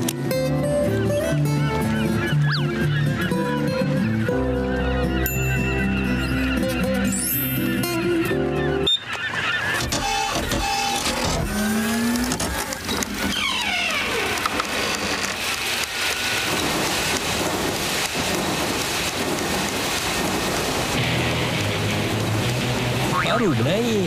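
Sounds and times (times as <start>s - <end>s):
churning water rush: 11.5s - 24.0s.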